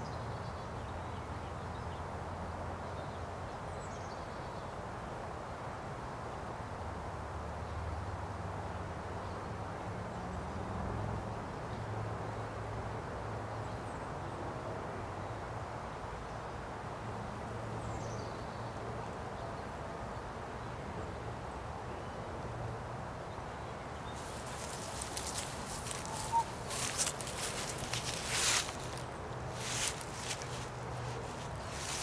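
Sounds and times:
faint bird chirps: 24.1 - 29.0.

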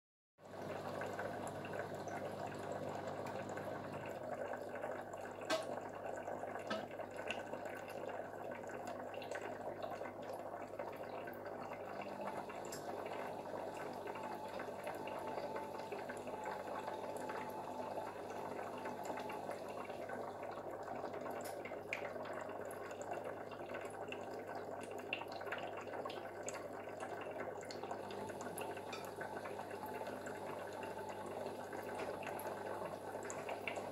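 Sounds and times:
aquarium water bubbling: 0.4 - 33.9
low steady hum: 11.2 - 23.1, 27.1 - 33.9.

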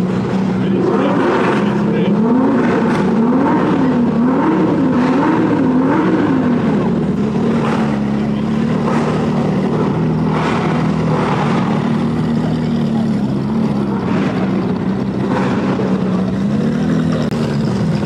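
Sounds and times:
car engine revving: 0.0 - 18.0.

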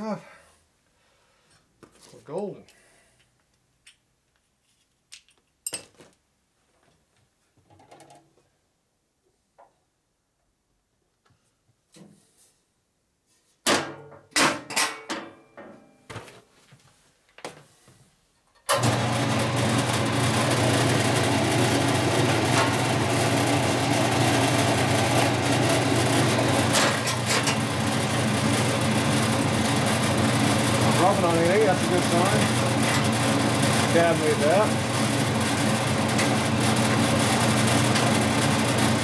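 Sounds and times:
bandsaw running: 18.7 - 39.0.

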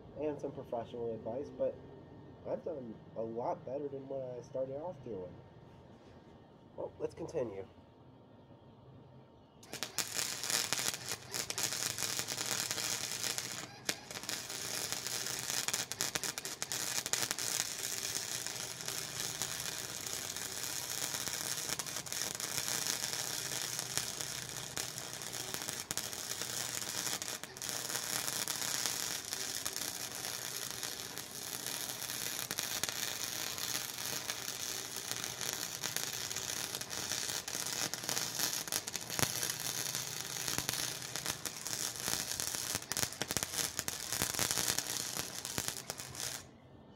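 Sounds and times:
welding arc crackling: 9.6 - 46.5.

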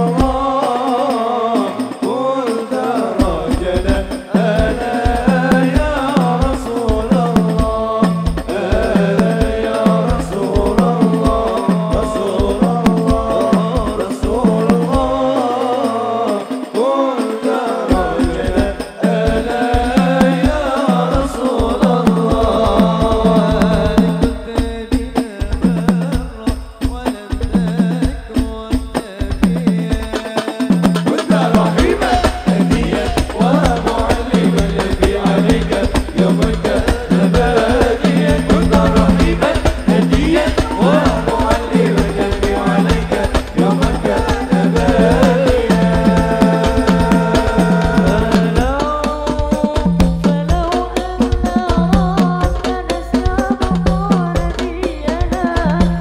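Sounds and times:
frame drums beating: 0.0 - 56.0
hand drum slaps: 30.5 - 48.8
person singing melismatic line: 40.2 - 43.0.

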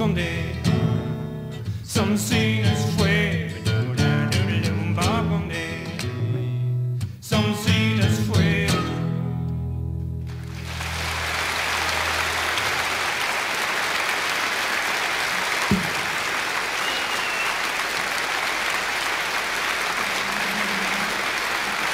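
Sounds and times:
audience applause: 10.3 - 21.9.

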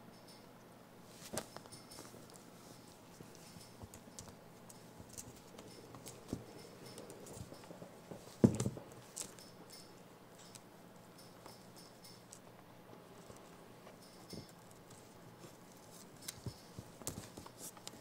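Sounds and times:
monkey pattering on a blanket: 1.0 - 9.5, 13.2 - 18.0.

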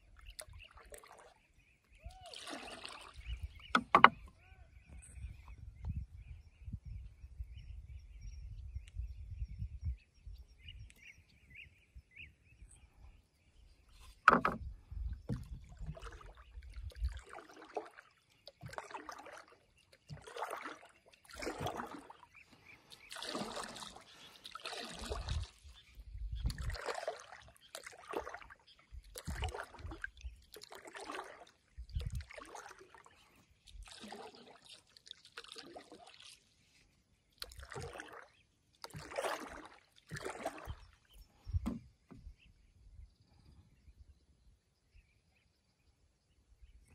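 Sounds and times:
water splashing from paddle strokes: 2.2 - 4.3, 14.1 - 14.7, 15.3 - 25.8, 26.4 - 42.3.

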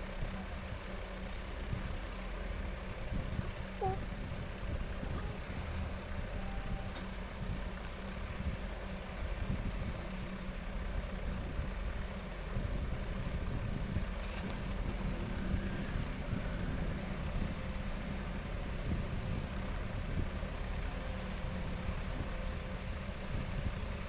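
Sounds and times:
low background rumble: 0.0 - 24.0
faint high whistle: 4.7 - 7.1, 8.1 - 10.4, 16.9 - 24.0.

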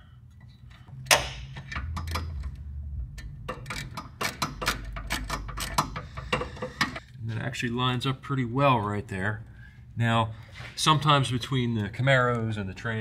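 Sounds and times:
ratchet wrench clicking: 3.2 - 7.0.

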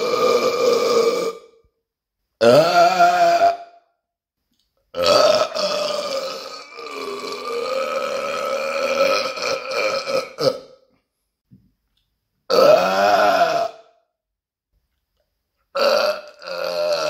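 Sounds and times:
man burping: 0.0 - 1.6, 2.4 - 3.8, 4.9 - 10.9, 12.5 - 14.0, 15.7 - 17.0.

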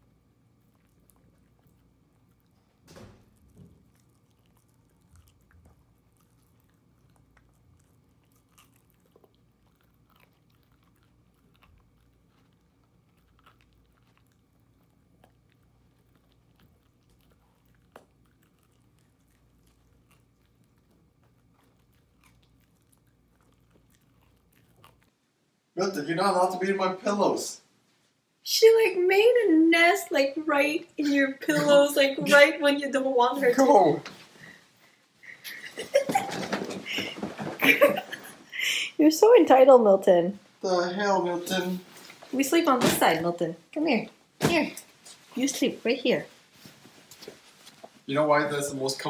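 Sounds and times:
low room hum: 0.0 - 49.0
dog gnawing chew stick: 0.3 - 25.2.

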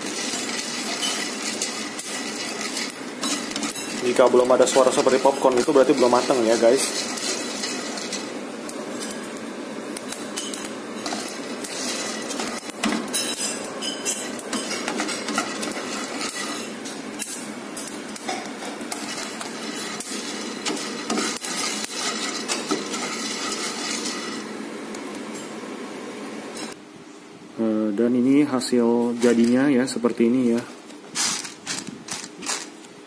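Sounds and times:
wooden spatula stirring: 0.0 - 8.4, 14.5 - 16.7, 18.4 - 24.4
coffee beans rattling in a pan: 0.0 - 9.2, 10.0 - 24.5, 31.2 - 32.8
beans cracking: 31.2 - 32.9.

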